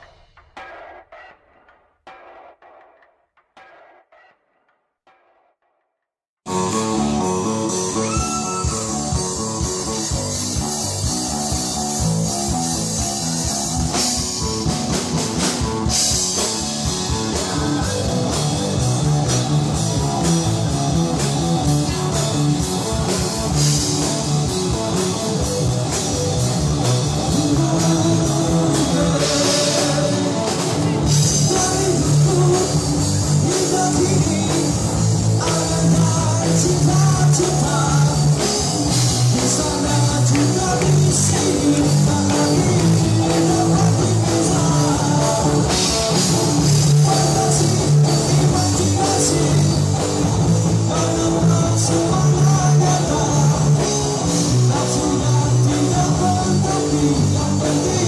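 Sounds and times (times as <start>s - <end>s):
rock band playing: 6.4s - 58.0s
man singing: 27.2s - 58.0s.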